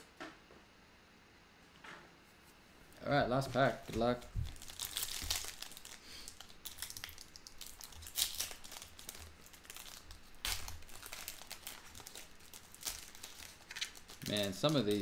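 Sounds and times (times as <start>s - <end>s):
wrapper rustling: 3.3s - 15.0s
card pack wrapper crinkling and tearing: 3.4s - 15.0s.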